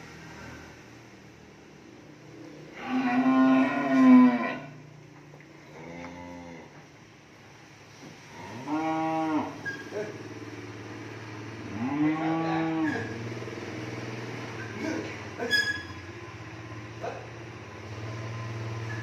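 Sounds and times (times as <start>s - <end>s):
cattle mooing: 2.7s - 4.8s, 5.6s - 6.8s, 8.3s - 10.2s, 11.6s - 13.4s.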